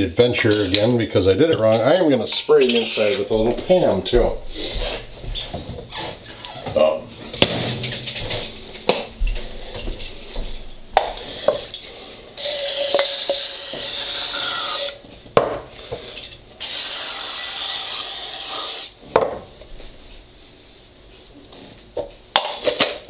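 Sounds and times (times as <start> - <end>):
aerosol spray hissing: 16.6 - 18.9.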